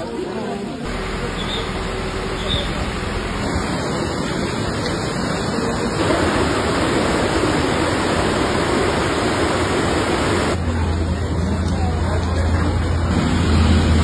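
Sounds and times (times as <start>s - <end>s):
river rushing in flood: 3.2s - 10.6s.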